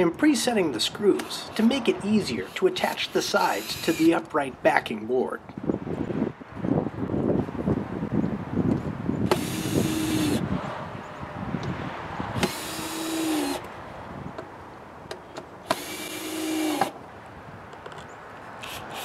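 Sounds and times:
cordless drill motor whine: 3.5 - 4.1, 9.3 - 10.4, 12.4 - 13.7, 15.7 - 16.9.

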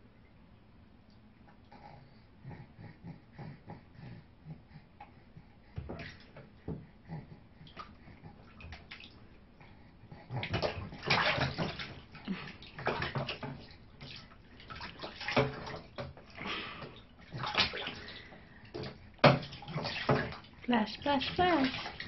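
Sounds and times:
water splashing in a bathtub: 5.6 - 22.0.

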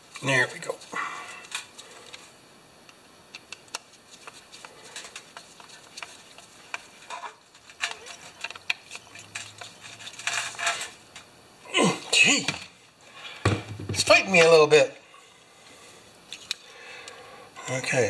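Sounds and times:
screwdriver and metal parts clicking: 3.3 - 11.2.

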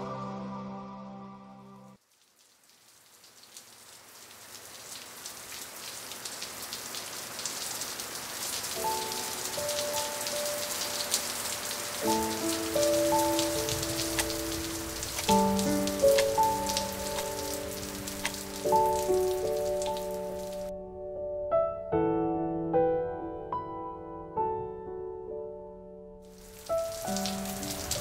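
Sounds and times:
rain falling: 2.0 - 20.7, 26.3 - 28.0
soft melody of held notes: 8.8 - 25.6.

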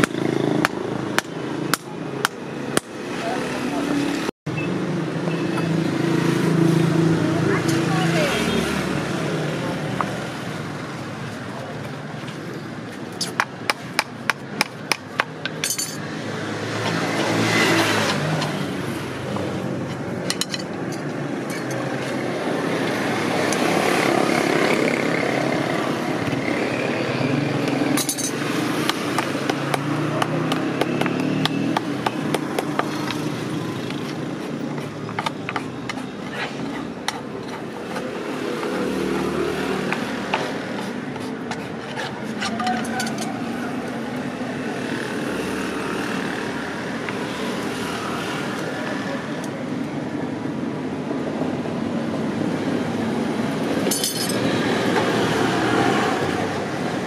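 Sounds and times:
hammer tapping on horseshoe: 0.0 - 3.0, 13.2 - 16.0, 28.0 - 33.3, 33.9 - 38.8
passing traffic: 0.0 - 57.0
tools scraping on hoof: 19.4 - 22.3, 27.6 - 43.5.

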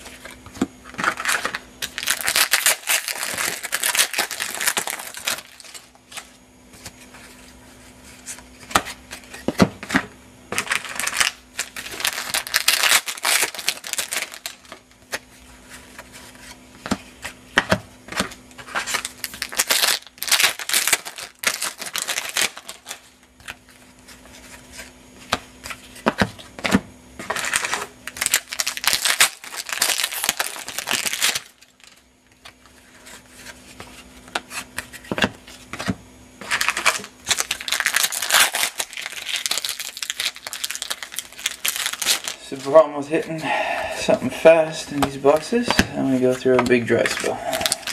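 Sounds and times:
plastic wrappers crinkling: 1.0 - 6.3, 10.6 - 14.9, 18.6 - 23.6, 27.3 - 32.0, 36.4 - 43.1, 44.0 - 47.9.

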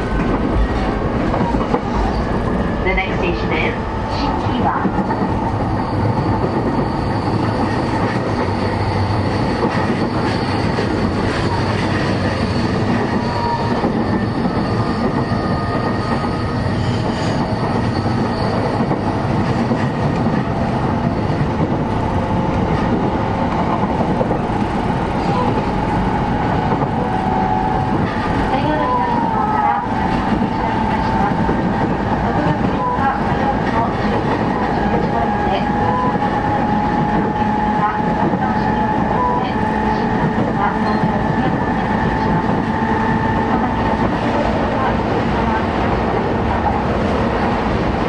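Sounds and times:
train wheels rumbling on rail: 0.0 - 48.0.

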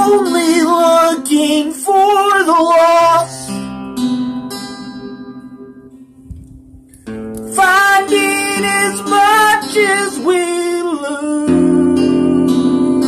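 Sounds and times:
man singing with vibrato: 0.0 - 3.7, 7.5 - 13.0
strummed acoustic guitar: 0.0 - 13.0.

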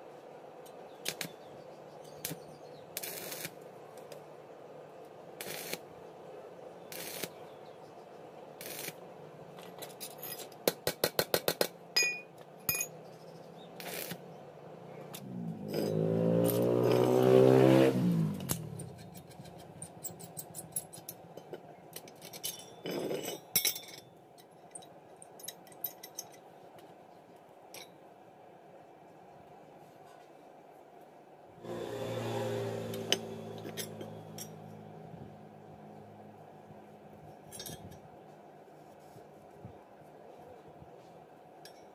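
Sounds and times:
metal taps and clinks: 9.6 - 13.0, 18.8 - 26.4, 33.1 - 34.7, 37.4 - 38.0
steel scraping: 15.6 - 21.1, 31.6 - 34.9.

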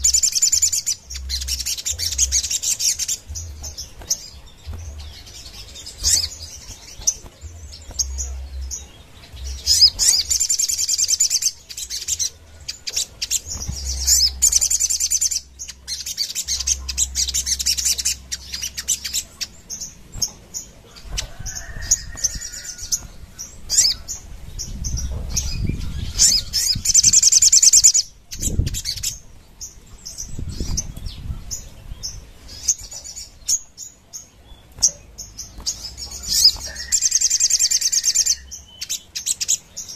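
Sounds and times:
bird chirps: 0.0 - 39.9
bird trilling: 34.8 - 39.7.

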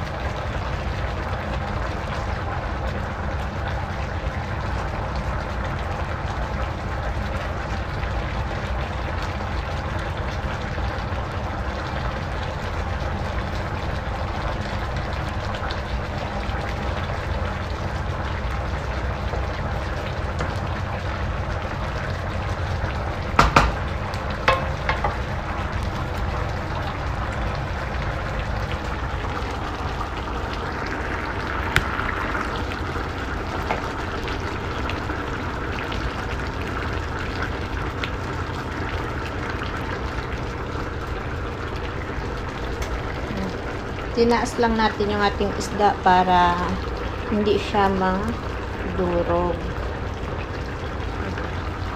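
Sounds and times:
stew simmering in a pan: 0.0 - 51.9
wooden spatula knocking on pan: 23.3 - 25.3.

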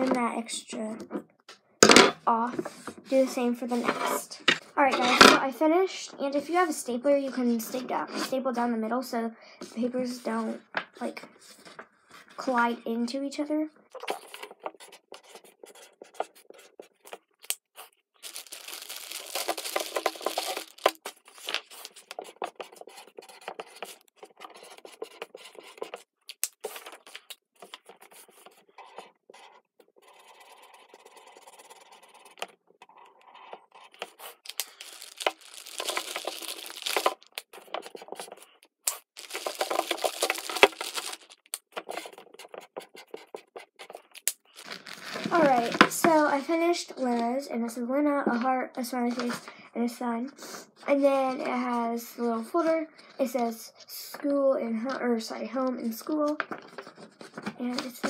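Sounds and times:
markers scratching on paper: 14.0 - 34.5, 35.6 - 44.2.

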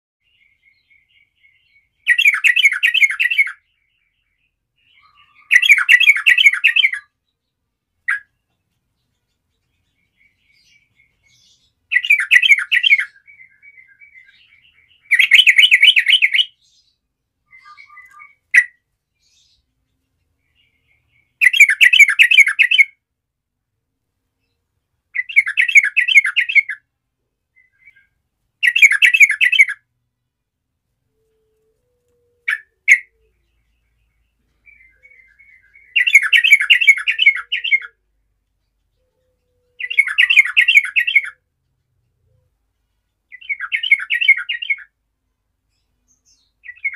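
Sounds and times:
bird singing warbled phrases: 0.2 - 23.1, 24.4 - 30.0, 31.0 - 45.0, 45.6 - 46.9
bird chirps and chatter: 17.5 - 19.6, 39.8 - 41.3.

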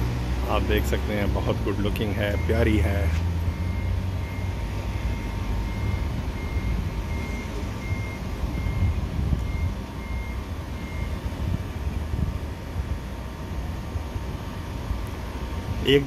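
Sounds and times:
vehicle reversing beeper: 0.0 - 12.0
low background rumble: 3.4 - 16.0.

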